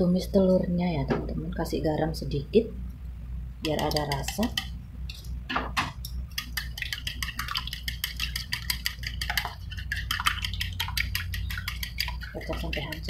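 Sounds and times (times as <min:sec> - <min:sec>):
low steady hum: 0:00.0 - 0:13.0
chopsticks clicking against bowl: 0:03.6 - 0:04.7.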